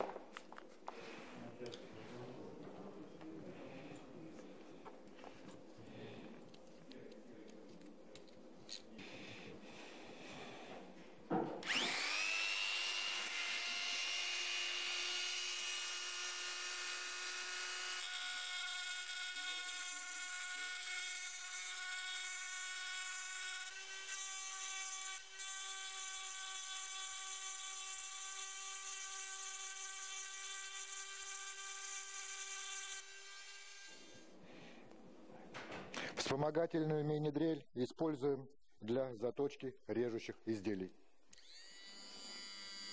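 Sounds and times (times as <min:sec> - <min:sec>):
rotary tool whine: 0:11.6 - 0:22.1, 0:41.3 - 0:42.9.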